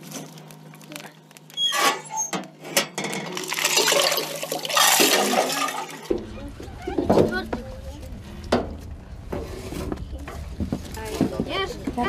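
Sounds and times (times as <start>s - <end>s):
water pouring into pot: 3.3s - 6.1s.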